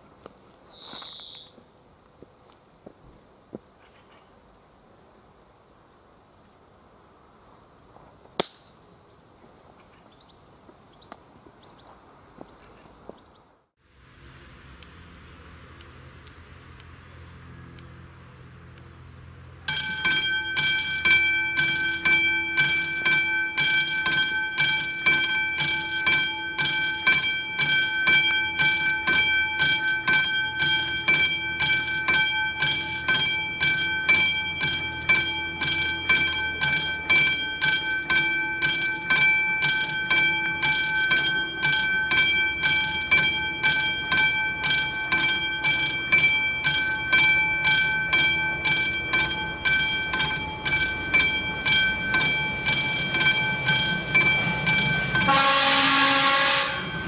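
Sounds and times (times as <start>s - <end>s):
level-crossing warning bell ringing: 19.6s - 57.0s.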